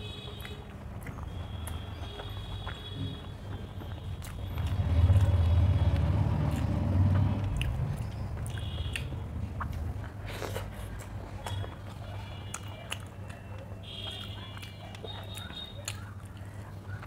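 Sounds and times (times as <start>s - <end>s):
close chewing: 0.3s - 17.0s
mouth clicks: 4.2s - 11.9s.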